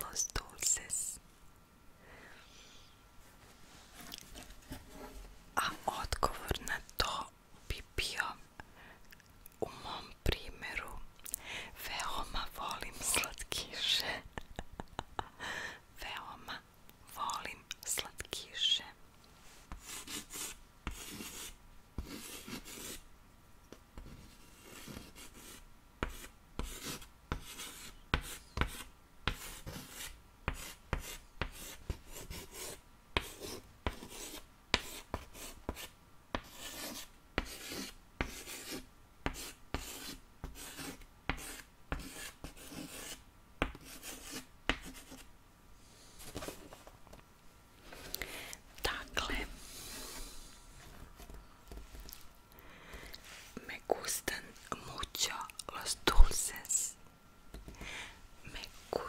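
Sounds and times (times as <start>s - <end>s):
chalk scratching on chalkboard: 19.6s - 23.0s, 24.1s - 45.3s.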